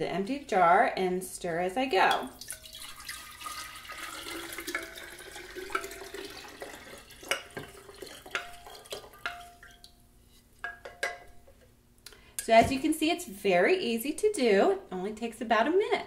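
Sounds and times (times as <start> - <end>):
spoon stirring in pitcher: 2.0 - 10.0
liquid pouring into glass jar: 2.2 - 10.0.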